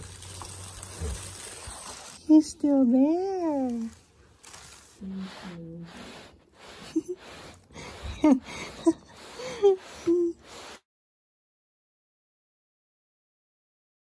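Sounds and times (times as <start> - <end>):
person making coaxing sounds: 5.0 - 10.8.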